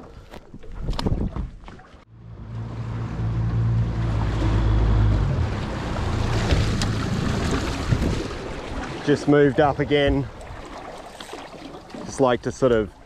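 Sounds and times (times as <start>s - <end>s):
outboard motor running: 2.1s - 10.2s
wind and water rushing: 2.2s - 13.0s.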